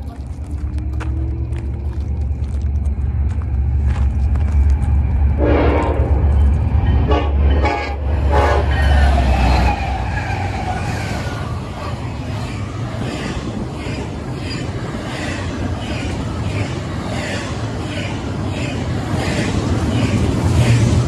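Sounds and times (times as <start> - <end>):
diesel locomotive engine rumble: 0.0 - 21.0
rolling noise of rail cars: 0.0 - 21.0
locomotive air horn blasts: 5.4 - 6.1, 7.0 - 8.9.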